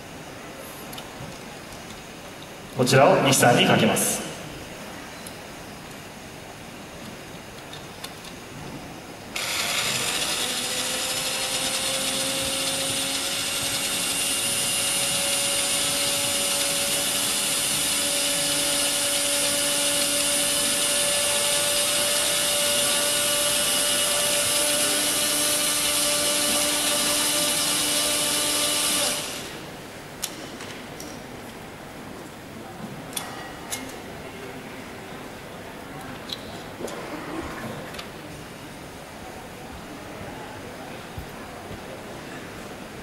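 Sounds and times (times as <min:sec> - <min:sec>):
blender motor running: 0:09.4 - 0:29.6.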